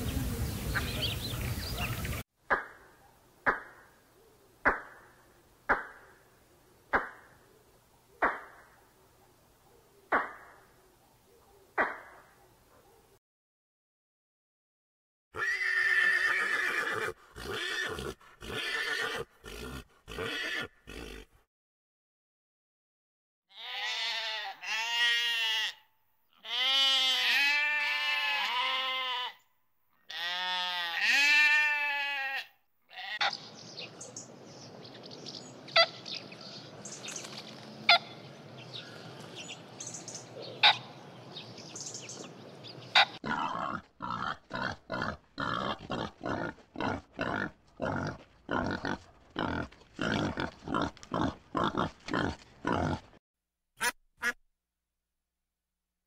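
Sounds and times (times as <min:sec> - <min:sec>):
pigs grunting: 0:16.9 - 0:21.4, 0:43.0 - 0:53.2
sheep bleating: 0:23.5 - 0:29.4, 0:30.1 - 0:33.3, 0:43.2 - 0:53.0.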